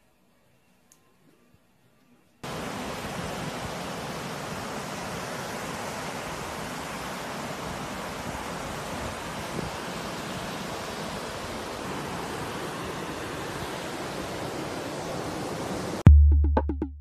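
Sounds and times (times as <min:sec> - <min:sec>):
wind: 0:00.9 - 0:16.0
surf rushing: 0:02.4 - 0:16.0.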